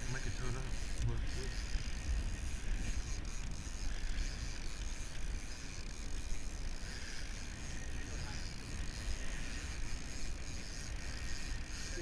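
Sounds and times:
water hissing along hull: 0.0 - 12.0
wind and sea rumble: 0.0 - 12.0.

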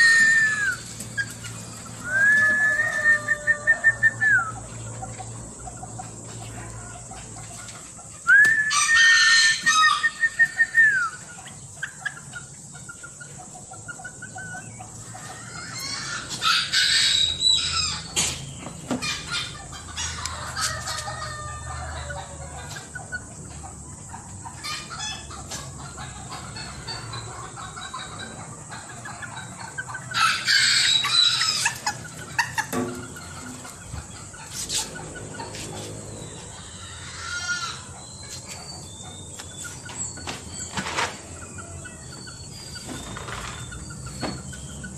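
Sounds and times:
rooster crowing: 2.0 - 4.6, 8.3 - 11.1, 20.0 - 22.8, 30.1 - 31.9.

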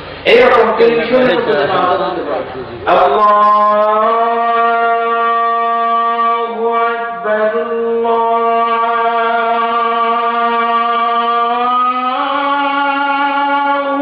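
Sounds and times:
person chanting long held notes: 2.9 - 14.0.

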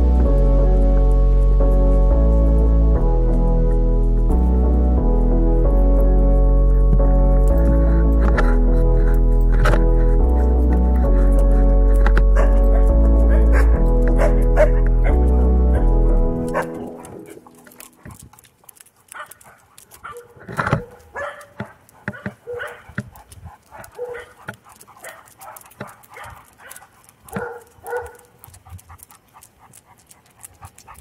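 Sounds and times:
background music: 0.0 - 18.2.

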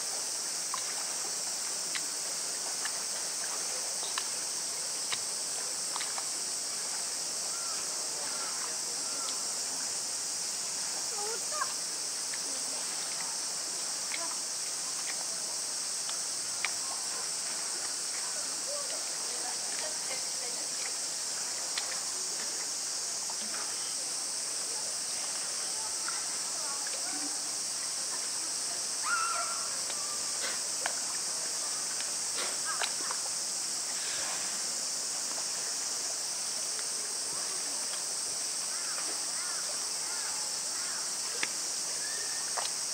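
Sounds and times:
cicadas droning: 0.0 - 42.9
running water hiss: 0.0 - 42.9
faint distant voices: 2.2 - 42.9
faint clicks: 16.0 - 16.8, 21.7 - 22.0, 31.9 - 33.3, 42.5 - 42.8.

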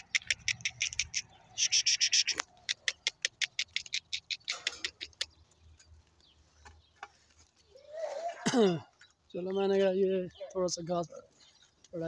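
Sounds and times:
fast sharp clicks: 0.0 - 5.4.

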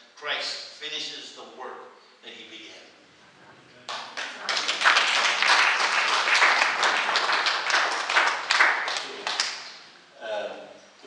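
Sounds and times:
audience applauding: 3.9 - 9.8.

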